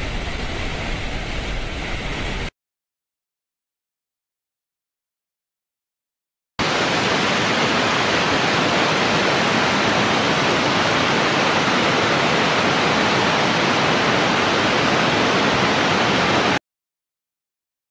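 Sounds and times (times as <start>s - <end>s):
rushing water hiss: 0.0s - 2.5s, 6.6s - 16.6s.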